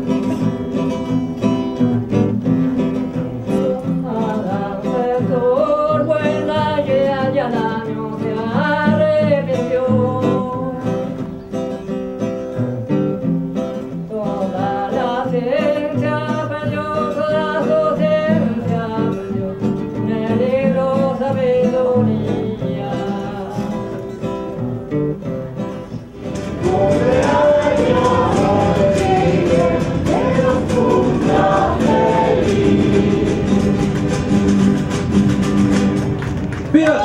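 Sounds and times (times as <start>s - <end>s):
acoustic guitar strummed and plucked: 0.0s - 37.0s
large group singing: 3.4s - 10.8s, 14.1s - 23.8s, 26.2s - 36.0s
voices singing together: 3.4s - 11.2s, 14.1s - 24.0s, 26.2s - 35.9s.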